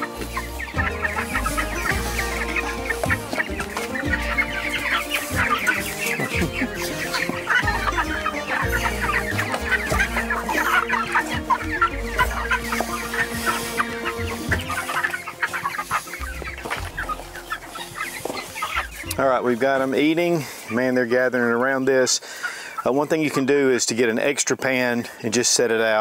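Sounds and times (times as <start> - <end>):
background music with bass: 0.0 - 20.5
chicks cheeping and clucking: 0.0 - 26.0.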